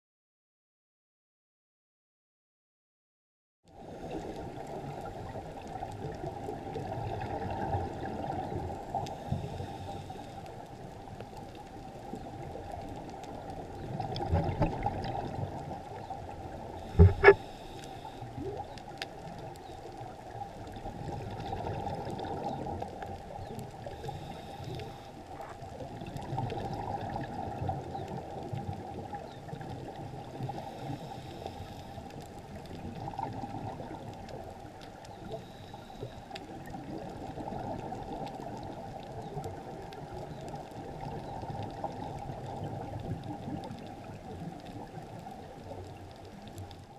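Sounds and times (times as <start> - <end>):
muffled regulator breathing and bubbles: 3.8 - 46.9
sharp knocks: 17.0 - 17.4.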